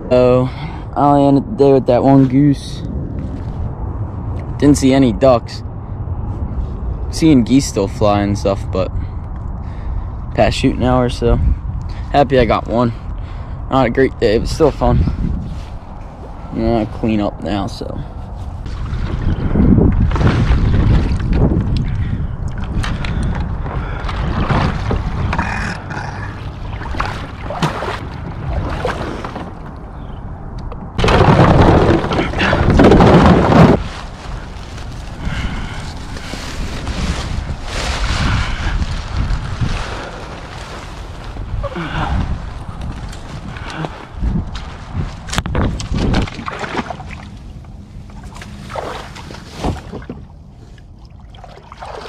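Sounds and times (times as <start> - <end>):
wind rumbling on microphone: 0.0 - 52.0
water splashes: 18.6 - 29.8, 45.8 - 47.5, 48.1 - 52.0
clothing and gear rustling: 33.1 - 35.2, 35.8 - 45.4.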